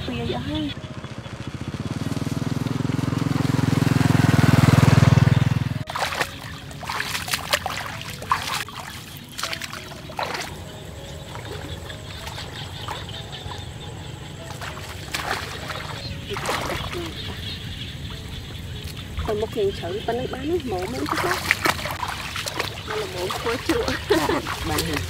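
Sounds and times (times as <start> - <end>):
small motorbike engine running: 0.0 - 6.6
rustling foliage: 0.8 - 25.0.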